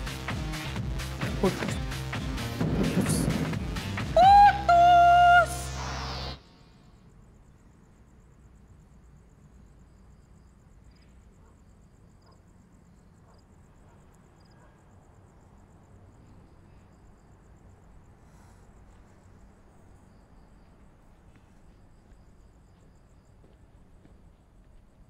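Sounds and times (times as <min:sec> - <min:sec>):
low even rumble: 0:02.2 - 0:04.2
crickets chirring: 0:02.6 - 0:25.0.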